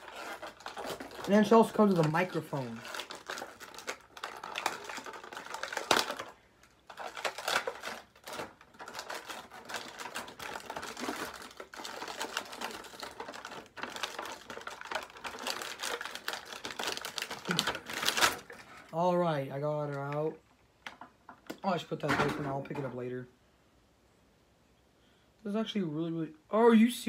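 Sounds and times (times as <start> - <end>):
plastic packaging crinkling: 0.0 - 19.0.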